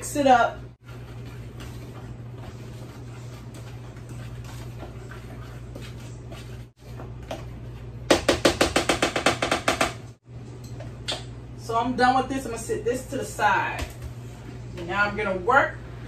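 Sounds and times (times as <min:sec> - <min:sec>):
utensil scraping in container: 0:00.8 - 0:07.9.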